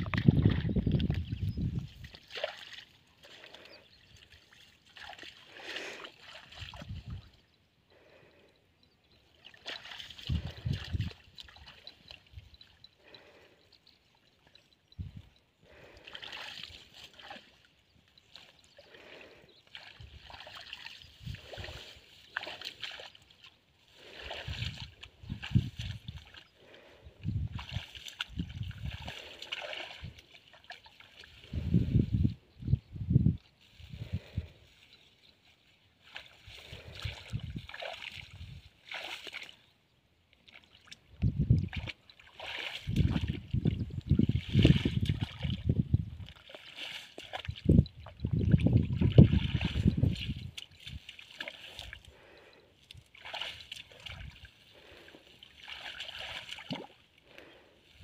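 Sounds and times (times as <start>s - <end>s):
hands splashing in muddy water: 0.0s - 7.3s, 9.4s - 12.2s, 19.7s - 26.4s, 27.5s - 31.7s, 36.0s - 39.6s, 40.5s - 57.6s.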